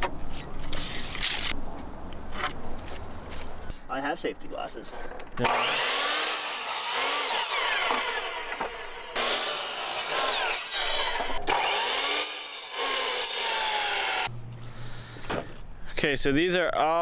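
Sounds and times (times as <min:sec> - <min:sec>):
miter saw cutting wood: 0:05.4 - 0:14.3.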